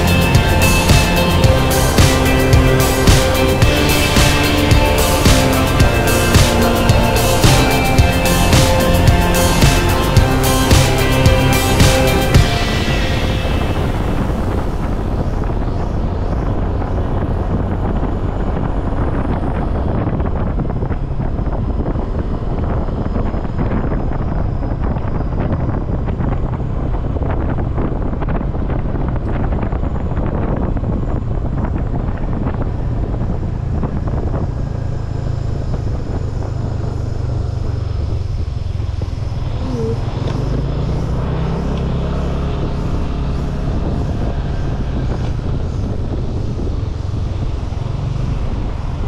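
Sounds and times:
road noise: 0:00.0 - 0:49.0
scooter engine drone: 0:00.0 - 0:49.0
wind buffeting microphone: 0:07.0 - 0:49.0.

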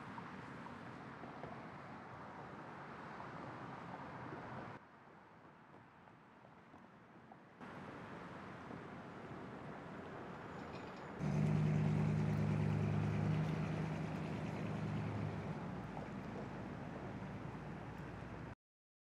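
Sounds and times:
car engine pulling away: 0:11.2 - 0:18.5.

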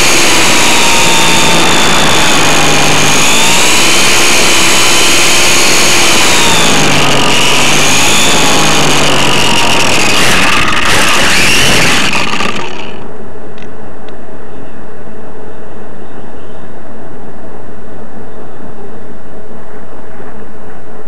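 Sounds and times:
model plane motor whining: 0:00.0 - 0:13.1.

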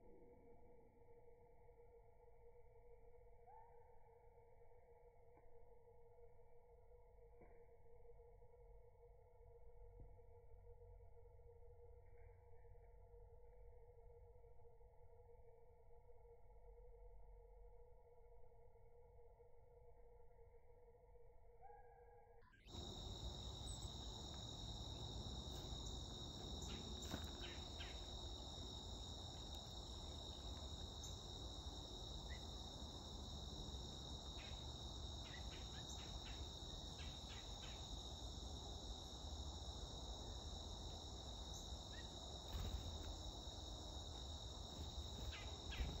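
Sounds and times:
insect chorus drone: 0:00.0 - 0:46.0.

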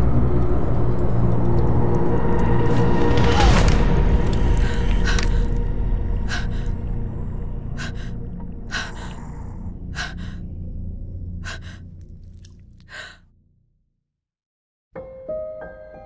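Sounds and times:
low drone: 0:00.0 - 0:13.2
hard heavy breaths: 0:04.2 - 0:10.7, 0:11.4 - 0:13.2.

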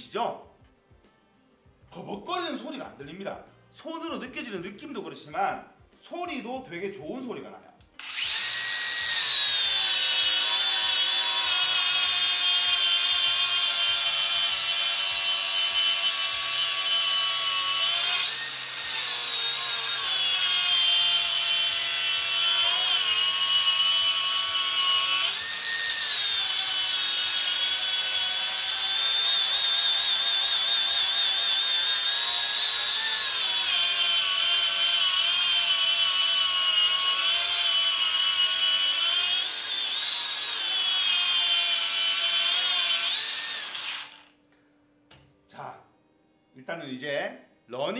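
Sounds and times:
angle grinder grinding metal: 0:08.0 - 0:44.3.

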